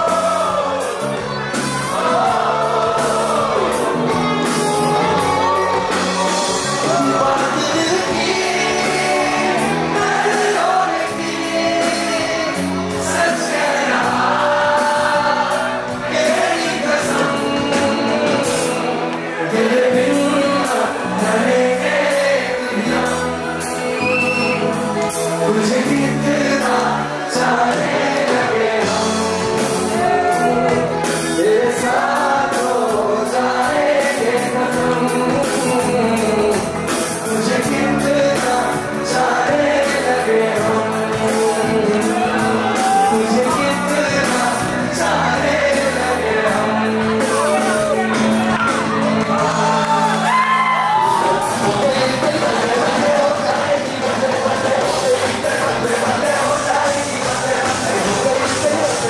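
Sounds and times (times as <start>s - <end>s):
drums: 0.0s - 59.0s
electric bass: 0.0s - 59.0s
man singing: 0.0s - 59.0s.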